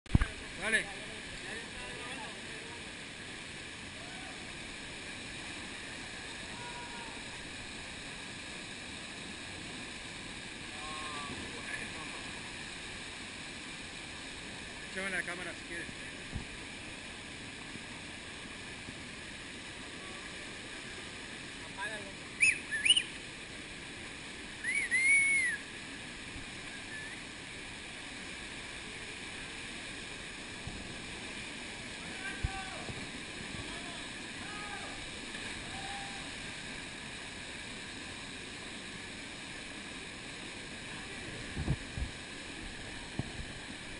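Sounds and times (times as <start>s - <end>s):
river water churning over rocks: 0.1s - 43.9s
person whistling: 24.6s - 25.6s.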